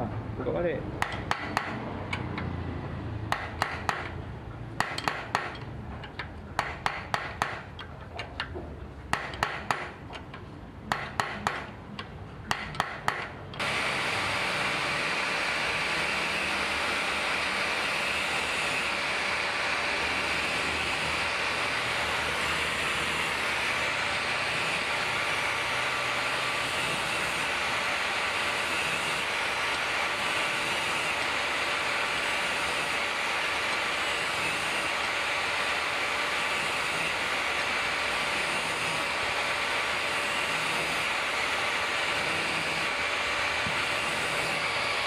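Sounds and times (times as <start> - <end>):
hammer tapping on metal: 1.0 - 2.3, 3.3 - 4.2, 4.8 - 13.4
loud steady rushing noise: 12.5 - 45.0.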